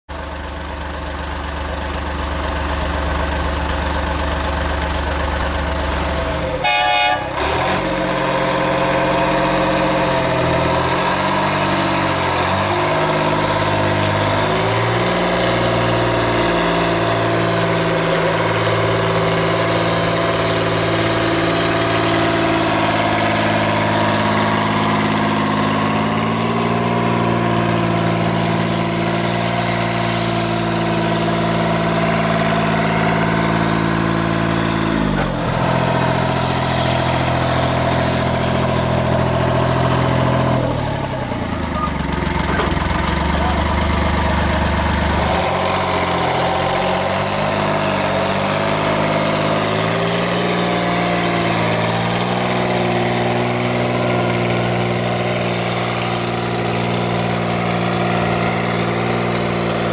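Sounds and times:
diesel locomotive engine running: 0:00.1 - 0:59.9
locomotive horn blast: 0:06.5 - 0:08.0.

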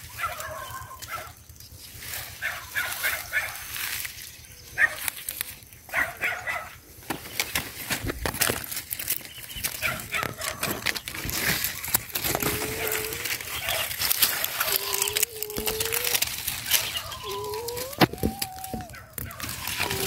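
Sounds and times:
puppies whining: 0:00.0 - 0:01.4, 0:09.1 - 0:20.0
dry leaves crackling: 0:00.0 - 0:20.0.

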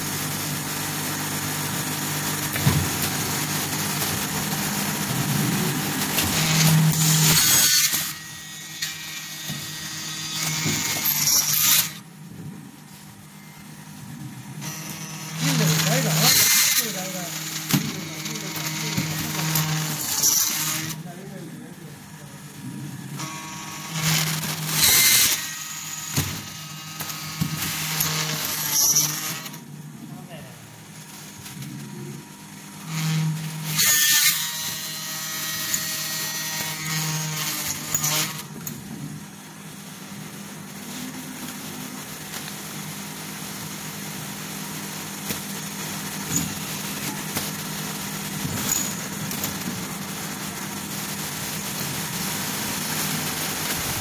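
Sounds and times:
machine motor hum: 0:00.0 - 0:33.7, 0:38.6 - 0:54.0.

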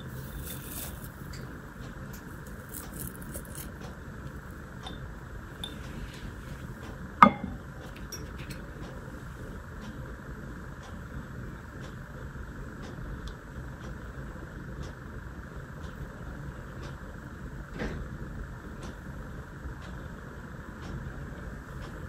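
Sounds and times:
steady low hiss: 0:00.0 - 0:22.0
glass clinking: 0:04.9 - 0:05.8, 0:07.2 - 0:08.6.

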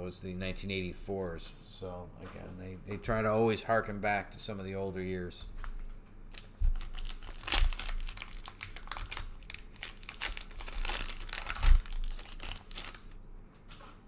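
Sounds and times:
card wrappers crinkling: 0:05.6 - 0:13.2.

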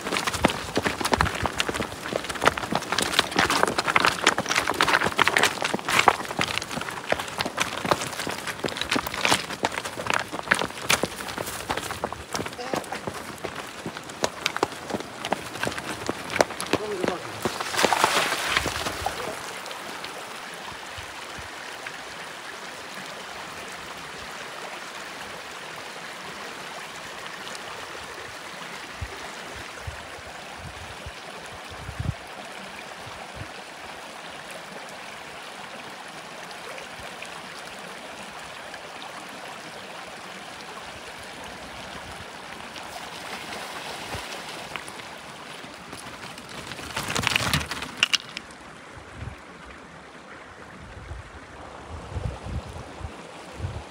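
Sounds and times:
bike rolling over loose stones: 0:00.0 - 0:19.6, 0:42.9 - 0:48.6
stream over rocks: 0:00.0 - 0:53.9
bike tyre splashing: 0:16.8 - 0:19.5.

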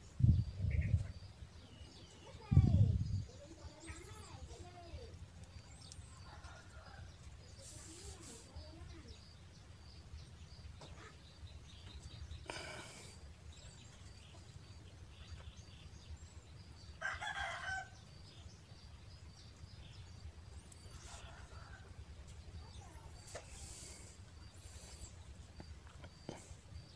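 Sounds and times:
faint rustles: 0:05.5 - 0:09.0
rooster crowing: 0:17.0 - 0:18.0.

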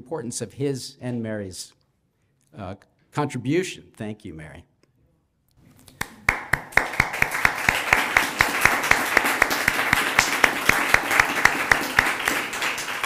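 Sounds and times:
loud nearby hand clapping: 0:05.9 - 0:13.0
audience applauding: 0:06.0 - 0:13.0.

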